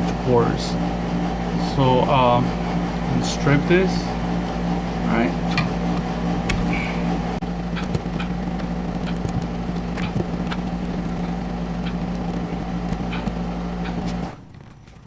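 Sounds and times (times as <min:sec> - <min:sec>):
low mechanical hum: 0:00.0 - 0:15.0
wire strippers clicking and snipping: 0:07.7 - 0:15.0.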